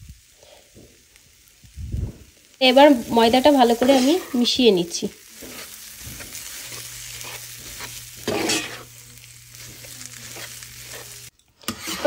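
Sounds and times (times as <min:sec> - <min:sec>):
spatula scraping thick mixture: 0:09.7 - 0:12.0.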